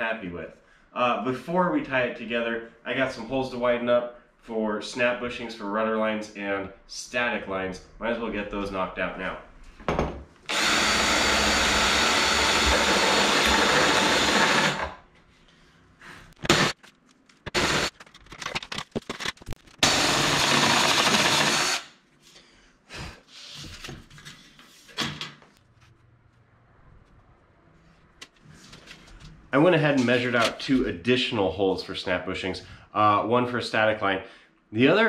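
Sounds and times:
cordless drill boring metal: 10.5s - 15.0s, 17.6s - 17.9s, 19.8s - 21.9s.

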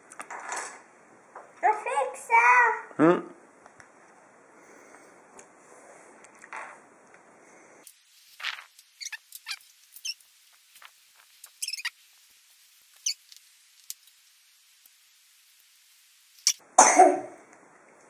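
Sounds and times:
foil wrapper crinkling: 7.9s - 14.9s.

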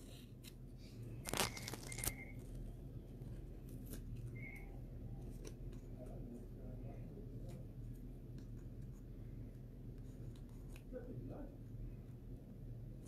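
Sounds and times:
tape peeling off card: 1.2s - 2.6s.

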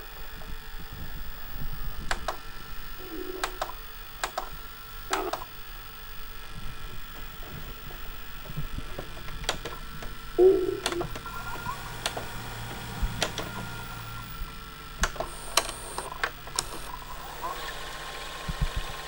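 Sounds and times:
faint steady hum and tone: 0.0s - 17.6s
sharp clicks and ticks: 3.4s - 4.5s, 9.4s - 11.3s.

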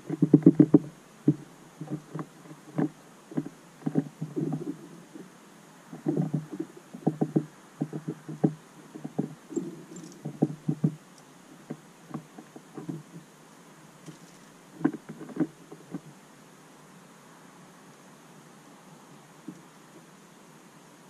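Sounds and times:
beaks tapping on seed feeder: 6.0s - 11.0s.

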